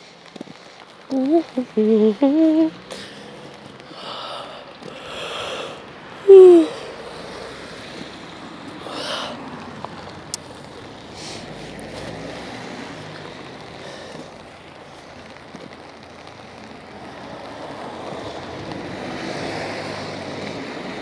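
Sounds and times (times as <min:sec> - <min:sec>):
cars passing on wet road: 0:00.0 - 0:21.0
rain: 0:00.0 - 0:21.0
short voice-like sound: 0:06.2 - 0:06.9.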